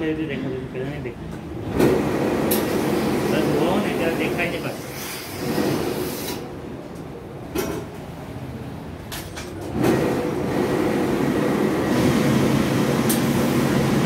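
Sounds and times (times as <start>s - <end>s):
pressing machine humming: 9.5s - 14.0s.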